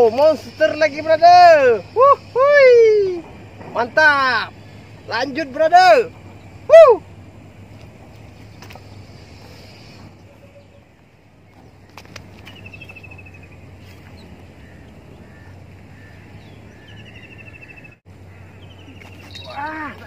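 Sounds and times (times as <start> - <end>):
steady low hum: 0.0 - 20.0
bird trilling: 11.7 - 20.0.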